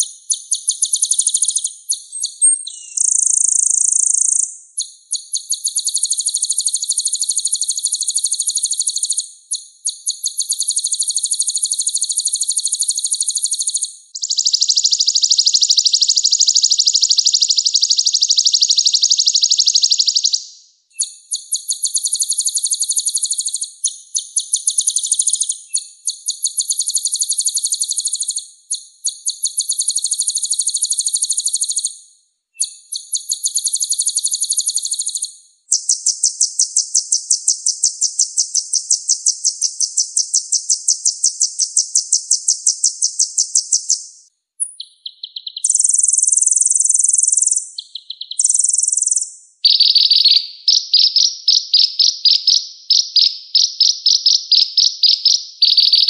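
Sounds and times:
bird singing buzzy trills: 0.0s - 20.4s, 42.1s - 52.4s.

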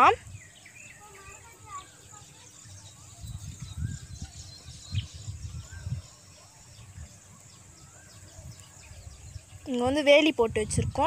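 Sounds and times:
faint bird chirps: 0.0s - 10.1s
low rumbling on microphone: 2.9s - 11.0s.

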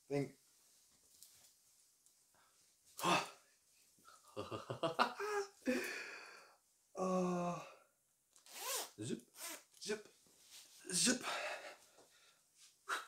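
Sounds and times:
man laughing: 4.3s - 5.8s.

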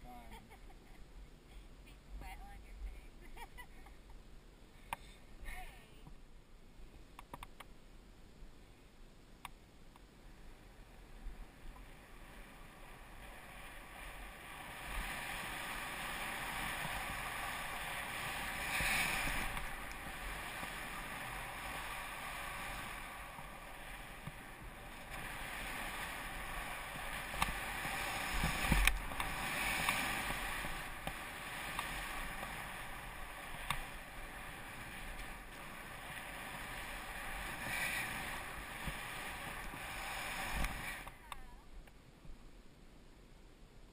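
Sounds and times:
light clicks: 7.1s - 7.7s
skis hissing through snow: 10.6s - 41.2s.

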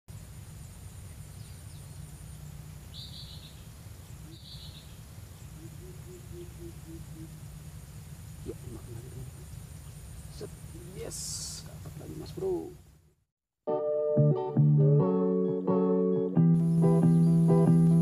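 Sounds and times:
high insect drone: 0.1s - 12.8s
bird calling low notes: 2.3s - 12.8s.

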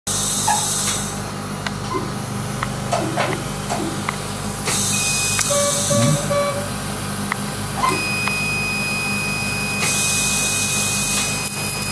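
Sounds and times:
short beeps: 5.0s - 6.7s.

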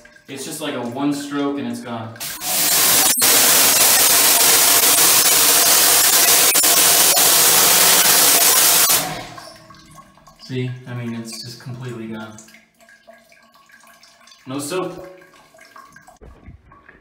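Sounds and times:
pressure washer jet hissing on tiles: 2.2s - 9.4s.

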